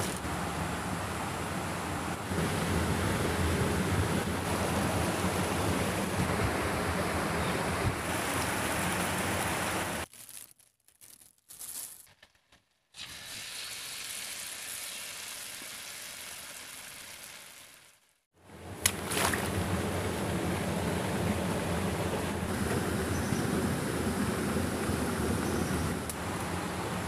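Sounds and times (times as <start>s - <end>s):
batter frying in hot oil: 13.0s - 18.2s.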